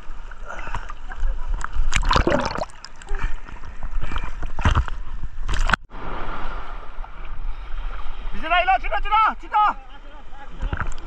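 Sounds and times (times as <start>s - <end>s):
seawater sloshing and splashing: 0.0s - 8.4s.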